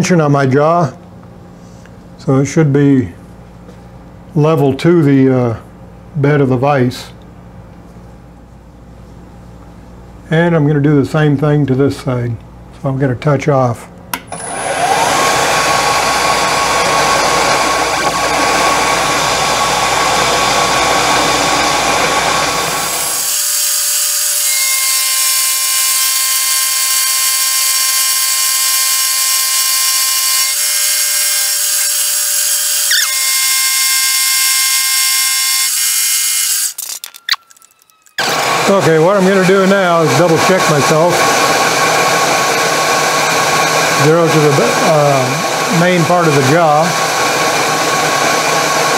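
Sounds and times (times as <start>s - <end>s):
high-pitched machine whine: 14.3s - 48.9s
milling machine cutting steel: 14.3s - 48.9s.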